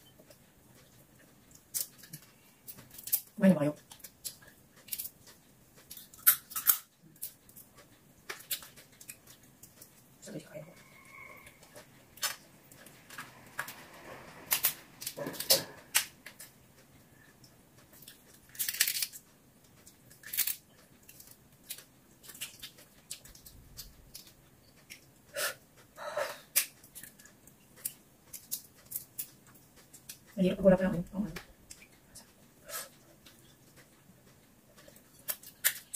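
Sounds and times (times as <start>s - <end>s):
shrimp shells being peeled: 1.5s - 10.0s, 17.9s - 25.1s, 26.5s - 30.4s.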